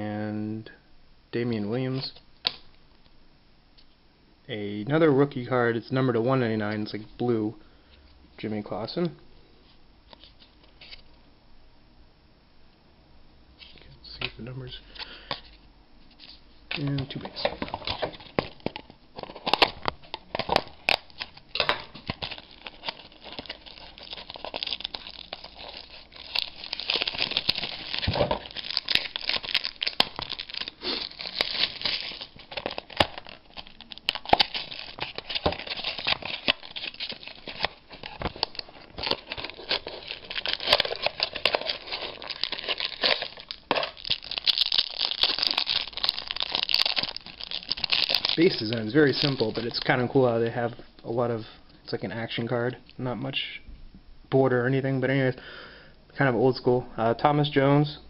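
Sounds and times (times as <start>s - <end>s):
wrapper crinkling and tearing: 16.2s - 50.7s.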